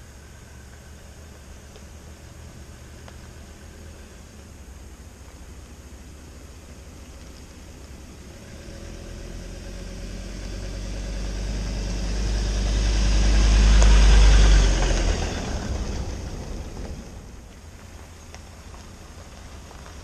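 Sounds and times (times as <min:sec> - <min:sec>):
tyres on dirt road: 0:00.0 - 0:20.0
vehicle engine passing: 0:08.0 - 0:17.6.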